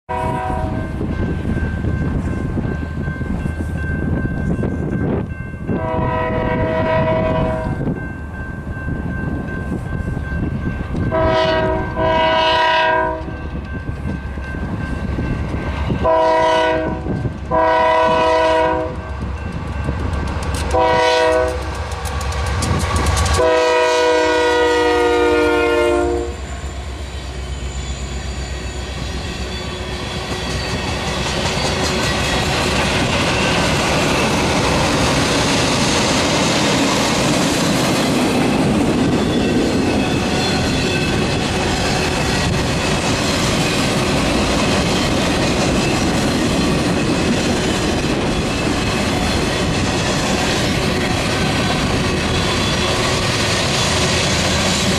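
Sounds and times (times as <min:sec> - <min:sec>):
locomotive horn blasts: 0:00.1 - 0:01.0, 0:05.7 - 0:07.8, 0:11.1 - 0:13.4, 0:16.0 - 0:19.0, 0:20.7 - 0:21.8, 0:23.4 - 0:26.5
train wheels clickety-clack: 0:00.4 - 0:25.7, 0:28.8 - 0:54.9.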